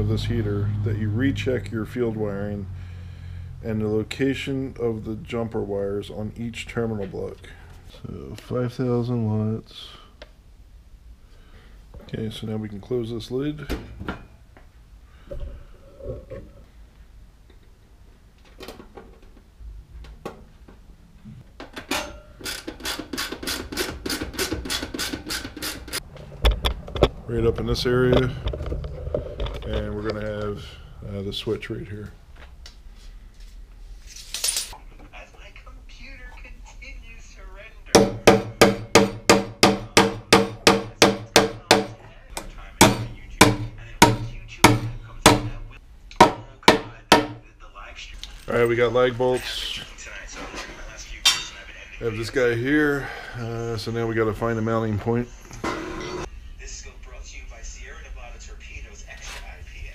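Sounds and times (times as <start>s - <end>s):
hand ratchet clicking: 22.4s - 26.0s
hammer striking nails into wood: 38.0s - 42.0s, 42.8s - 45.6s, 46.2s - 47.4s.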